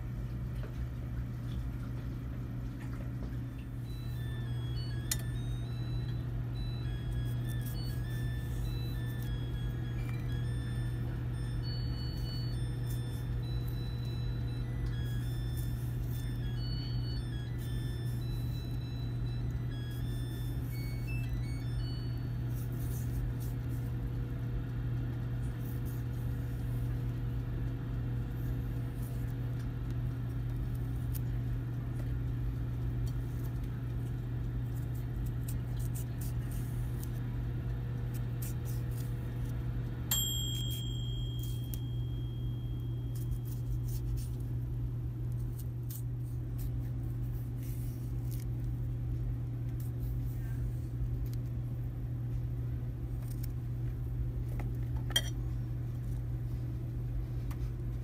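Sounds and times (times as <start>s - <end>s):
steady low hum: 0.0s - 58.0s
high ringing tone: 3.5s - 23.8s, 40.0s - 44.3s, 55.1s - 55.4s
faint high whine: 3.5s - 23.9s.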